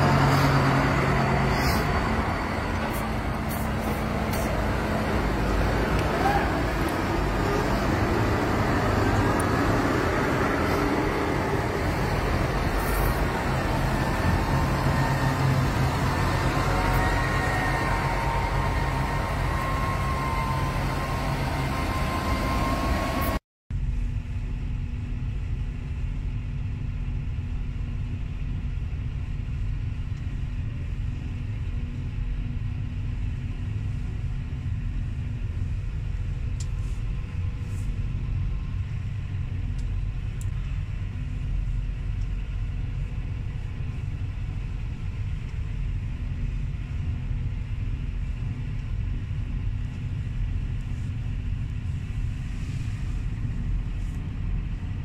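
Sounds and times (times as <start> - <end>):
engine rumble inside tractor cab: 0.0 - 21.1, 23.7 - 55.0
tractors driving past: 0.0 - 23.4.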